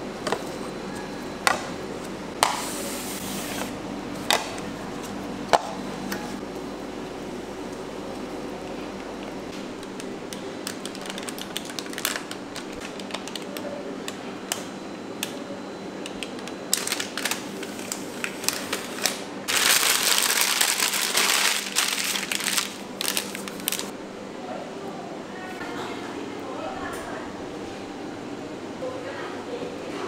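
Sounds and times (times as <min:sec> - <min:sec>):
plastic piping bag crinkling: 0:09.8 - 0:13.7, 0:16.3 - 0:23.9.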